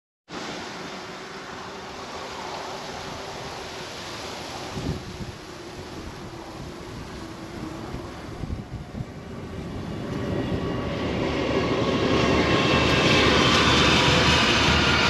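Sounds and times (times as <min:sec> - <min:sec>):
distant diesel locomotive hum: 0:00.4 - 0:15.0
wind noise on microphone: 0:04.2 - 0:15.0.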